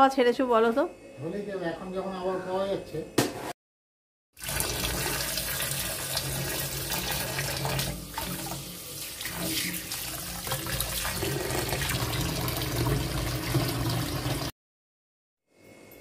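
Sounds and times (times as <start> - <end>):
water splashing on herbs: 6.9 - 11.3.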